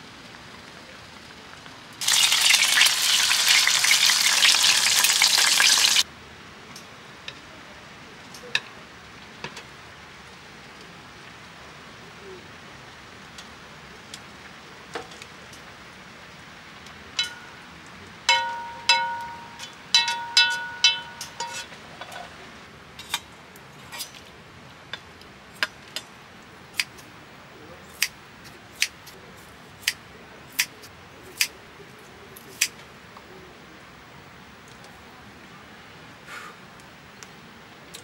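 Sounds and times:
hard objects clinking: 18.3s - 21.8s.

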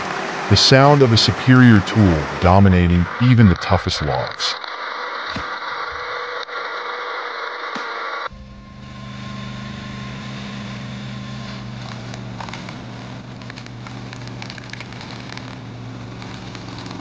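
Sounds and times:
log splitter motor running: 7.7s - 17.0s
wood crackling and snapping: 11.5s - 17.0s.

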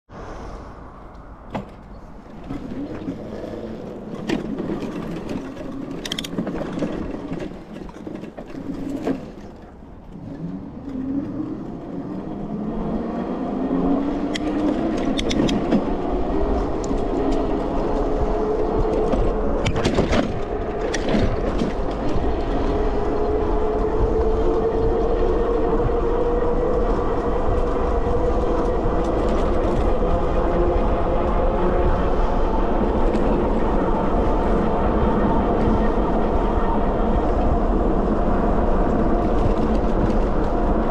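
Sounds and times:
tyre and wind rumble: 0.1s - 40.9s
electric bike motor whine: 10.4s - 40.9s.

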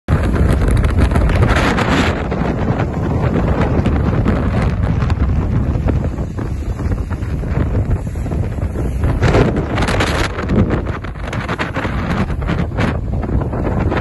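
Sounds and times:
waves breaking on shore: 0.1s - 14.0s
wind buffeting microphone: 0.1s - 14.0s.

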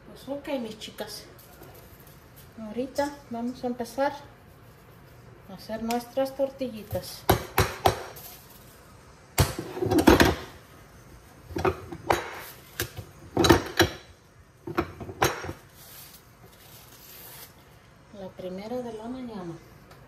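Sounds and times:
dishes and utensils clattering: 9.5s - 10.5s, 11.5s - 15.6s.

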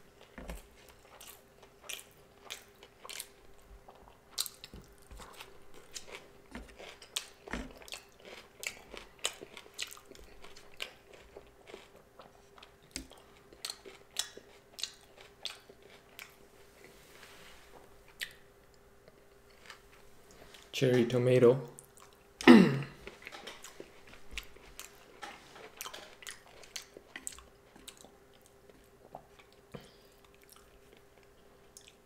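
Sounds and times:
person chewing crunchy food: 0.1s - 17.0s, 18.0s - 20.7s, 21.8s - 32.0s.

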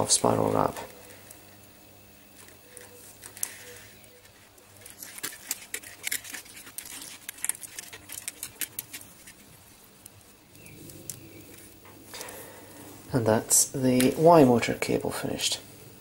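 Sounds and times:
plastic cable wrap clicking: 4.2s - 9.1s.

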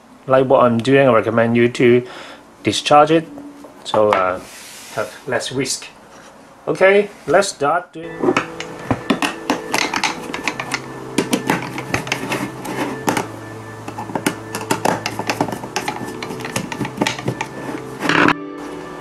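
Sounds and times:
soft background music: 8.0s - 19.0s
screwdriver clicking and scraping: 8.3s - 18.3s.

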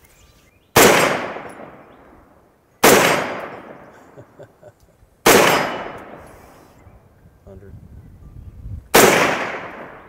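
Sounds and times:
gunshots echoing: 0.8s - 2.0s, 2.8s - 4.2s, 5.2s - 6.3s, 8.9s - 10.0s.

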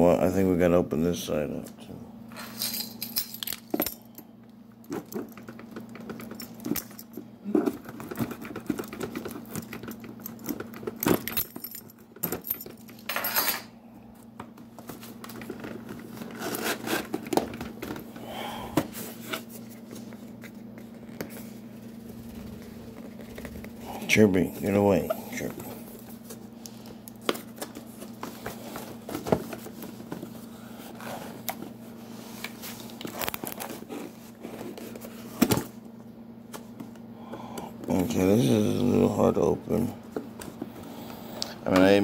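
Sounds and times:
packaging rustling: 25.3s - 35.4s.

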